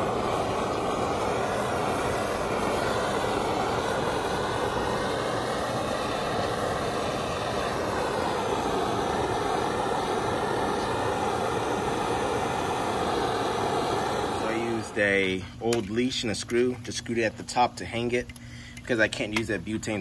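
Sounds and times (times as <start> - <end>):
torch flame blowing: 0.0 - 15.8.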